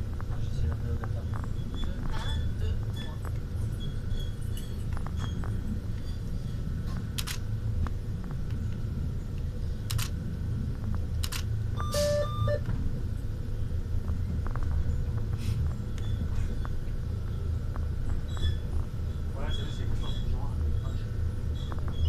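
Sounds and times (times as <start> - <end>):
railcar low rumble: 0.0 - 22.0
two-pitch electronic beep: 11.8 - 12.6.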